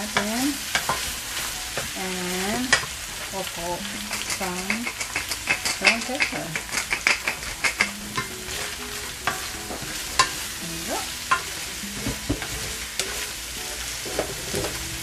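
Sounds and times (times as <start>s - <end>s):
frying sizzle in a pan: 0.0s - 15.0s
spatula clacking against pan: 0.2s - 1.1s, 4.0s - 10.4s, 11.2s - 13.3s.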